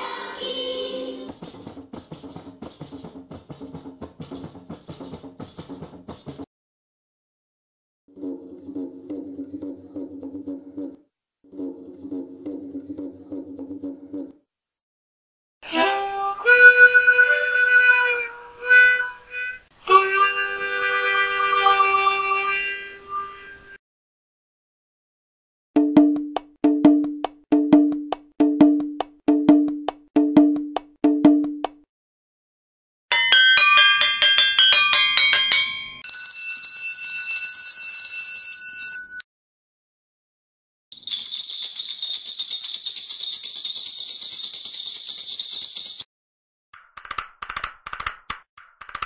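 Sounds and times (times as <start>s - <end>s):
harmonica playing chords: 15.7s - 23.6s
handbells ringing: 33.1s - 39.2s, 41.0s - 46.1s.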